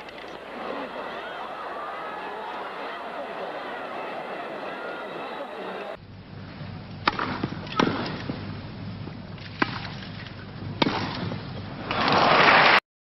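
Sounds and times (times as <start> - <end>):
crowd applause: 0.0 - 6.0, 11.8 - 12.8
crowd murmuring: 0.0 - 6.0
tennis ball hits: 7.0 - 8.4.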